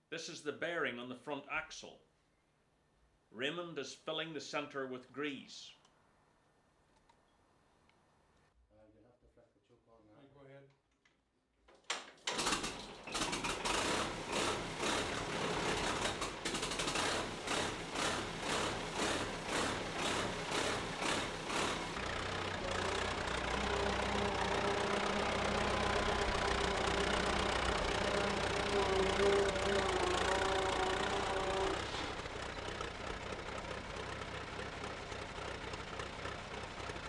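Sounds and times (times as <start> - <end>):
tractor engine pulsing: 12.3 - 37.0.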